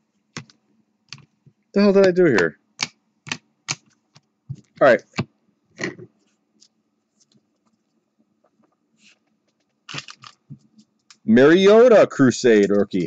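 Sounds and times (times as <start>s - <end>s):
cards clicking and tapping: 0.4s - 1.3s, 2.0s - 6.0s
soft card rustle: 5.8s - 11.3s, 12.4s - 13.0s.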